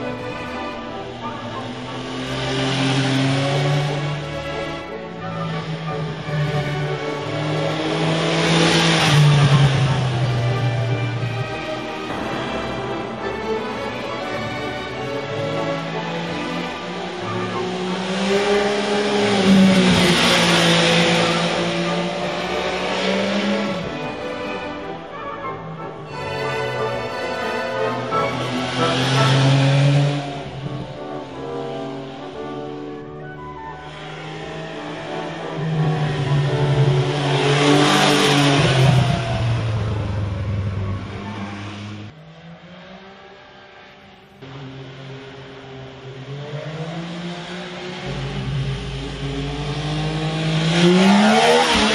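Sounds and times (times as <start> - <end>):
motorcycle engine revving: 46.2 - 51.9.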